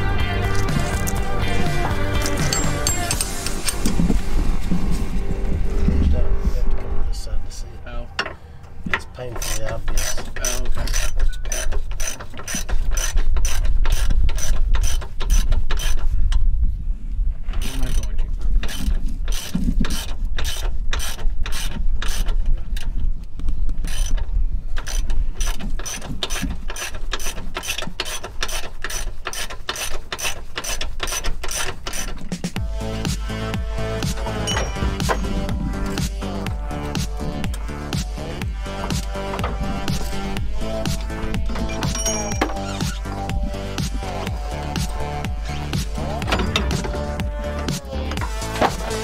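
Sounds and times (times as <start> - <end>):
ratchet wrench clicking: 2.2 - 4.0, 9.4 - 16.1, 17.6 - 22.9, 23.8 - 24.2, 24.8 - 32.6.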